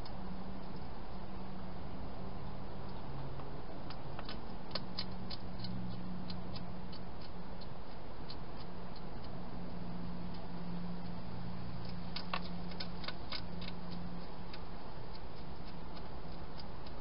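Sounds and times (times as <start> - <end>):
steady low hum: 0.0 - 17.0
hedgehog crunching food: 3.9 - 11.2, 11.8 - 17.0.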